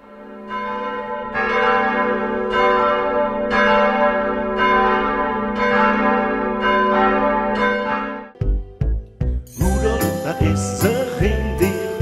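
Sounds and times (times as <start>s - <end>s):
church bells pealing: 0.0s - 8.4s.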